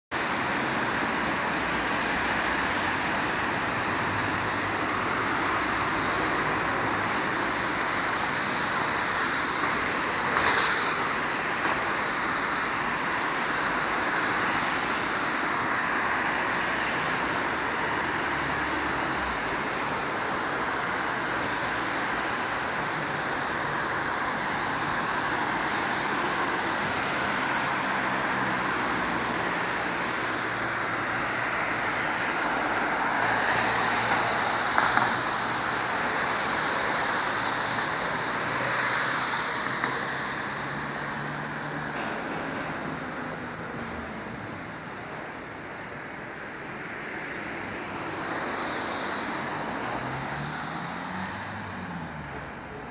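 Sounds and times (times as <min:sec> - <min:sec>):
traffic engine noise: 0:00.1 - 0:52.9
tyres hissing on wet road: 0:00.2 - 0:52.9.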